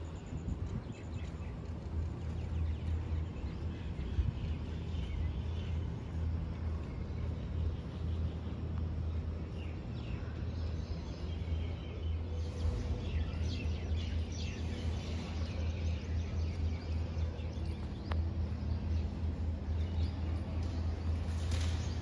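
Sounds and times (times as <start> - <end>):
birds chirping: 0.0 - 22.0
low outdoor rumble: 0.0 - 22.0.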